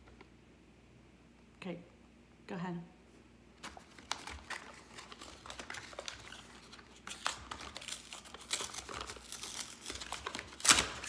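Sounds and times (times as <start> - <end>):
plastic cups crinkling: 3.6 - 11.0.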